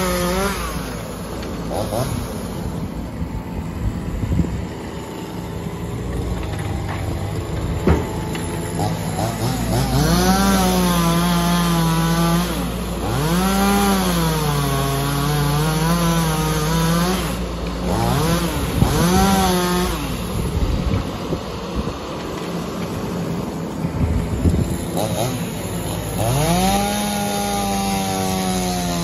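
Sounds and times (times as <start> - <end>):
machine running hum: 0.0 - 13.5
hydraulic whine: 0.0 - 29.0.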